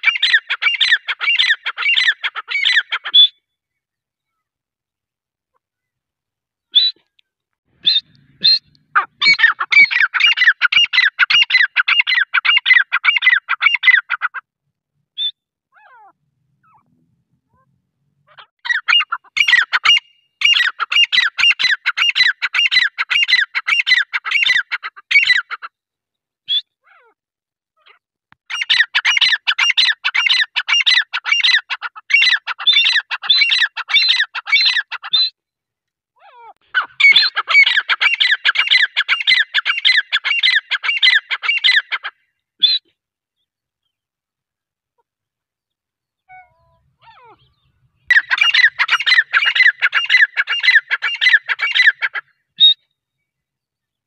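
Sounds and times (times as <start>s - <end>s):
francolin calling: 7.8s - 14.4s, 36.6s - 42.9s, 46.2s - 52.9s.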